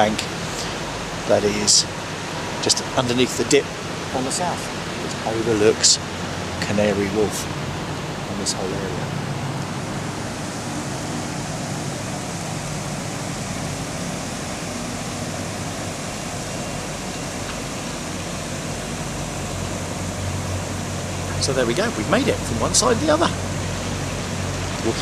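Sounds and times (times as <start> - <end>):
outdoor rushing noise: 4.9 - 25.0.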